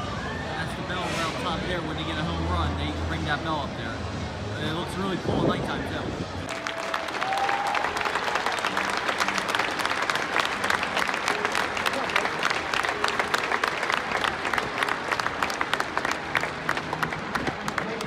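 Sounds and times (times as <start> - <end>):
crowd applauding: 6.5 - 18.0
sharp hand claps nearby: 6.5 - 18.0.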